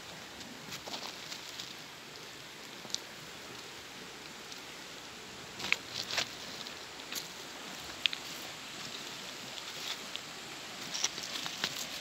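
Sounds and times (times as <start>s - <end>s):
background hiss: 0.0s - 12.0s
footsteps on loose pebbles: 0.4s - 1.8s, 10.8s - 12.0s.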